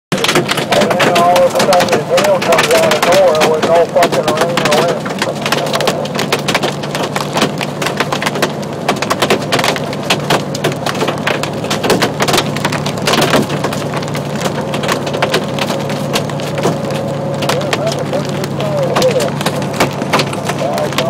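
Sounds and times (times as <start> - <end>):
hail clattering on truck cab: 0.1 - 21.0
truck low hum: 0.1 - 21.0.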